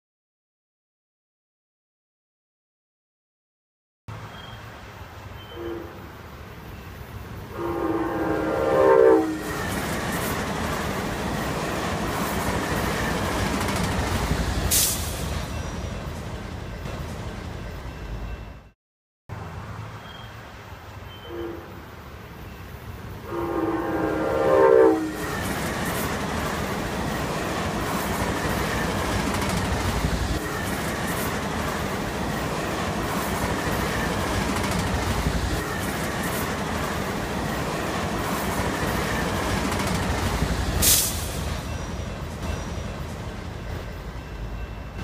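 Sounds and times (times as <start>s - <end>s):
train horn blast: 5.4s - 6.1s, 7.5s - 9.7s, 21.2s - 21.8s, 23.2s - 25.5s
train wheels clickety-clack: 9.4s - 17.6s, 25.1s - 45.0s.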